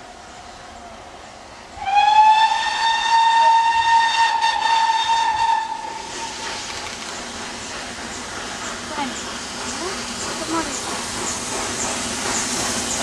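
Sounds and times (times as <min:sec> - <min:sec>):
steam hiss: 0:00.0 - 0:13.0
steam locomotive whistle: 0:01.8 - 0:06.4.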